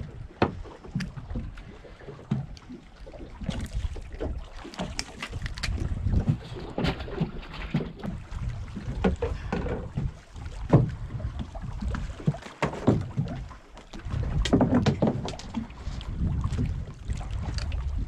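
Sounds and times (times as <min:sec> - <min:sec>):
knocks and splashes: 0:00.0 - 0:18.0
water sloshing against hull: 0:00.0 - 0:18.0
wind buffeting microphone: 0:03.2 - 0:12.4, 0:13.0 - 0:18.0.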